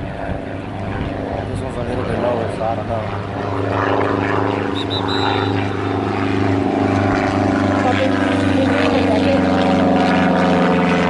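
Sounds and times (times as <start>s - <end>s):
engine drone: 0.0s - 11.0s
short high tones: 4.7s - 5.8s.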